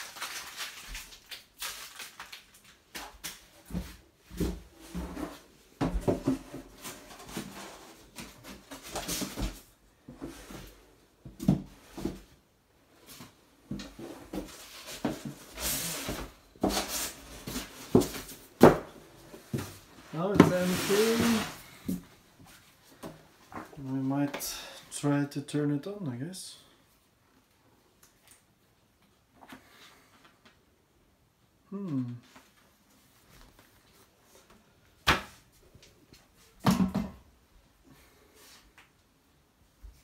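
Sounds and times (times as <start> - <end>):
rustling of equipment: 11.8 - 24.1.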